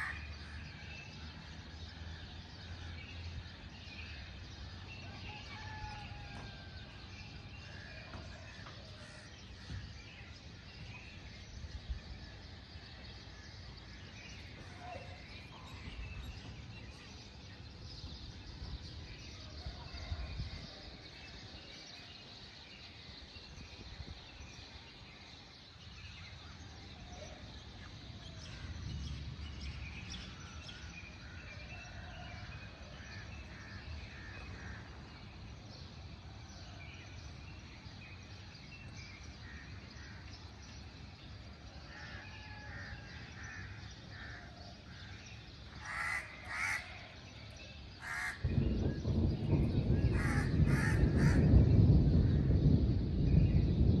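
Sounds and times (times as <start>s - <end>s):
loud harsh caws: 45.8s - 47.0s, 48.0s - 48.4s, 50.1s - 51.5s.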